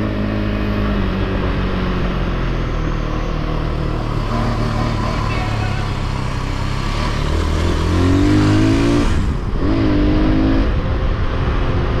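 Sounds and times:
wind and road noise: 0.0 - 12.0
motorcycle engine accelerating: 3.8 - 11.9.

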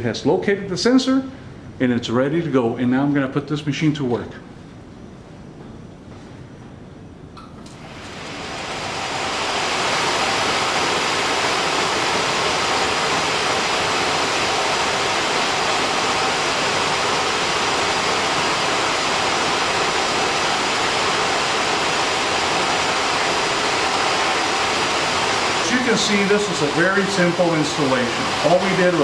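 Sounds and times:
machine rushing noise: 7.8 - 29.0.

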